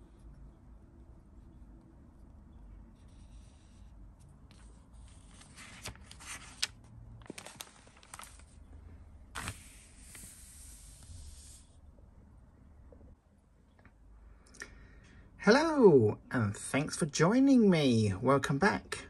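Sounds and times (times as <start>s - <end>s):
paper pages rustling: 4.5s - 8.6s, 9.3s - 10.9s
sharp paper crackles: 4.5s - 8.6s, 9.3s - 10.5s.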